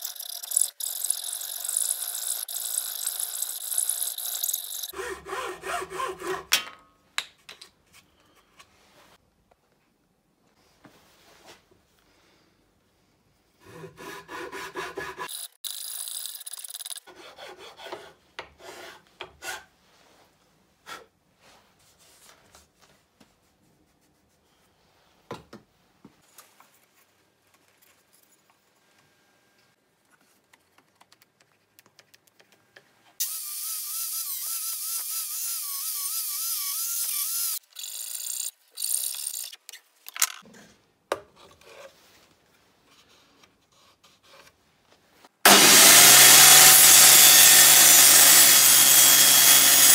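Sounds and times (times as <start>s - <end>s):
metal file rasping on wood: 4.9s - 6.5s, 13.6s - 15.5s, 17.0s - 19.7s.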